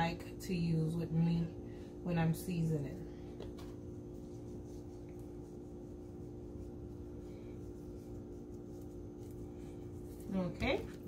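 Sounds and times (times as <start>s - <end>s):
low electrical hum: 0.0s - 11.0s
seasoning sprinkling rustle: 3.8s - 11.0s.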